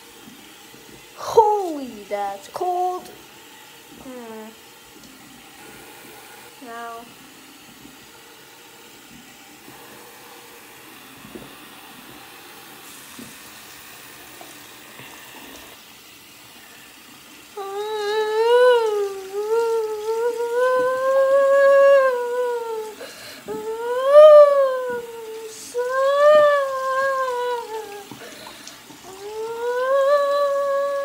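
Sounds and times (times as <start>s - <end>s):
faucet running into basin: 0.0s - 31.0s
person humming: 17.6s - 28.4s, 29.0s - 31.0s.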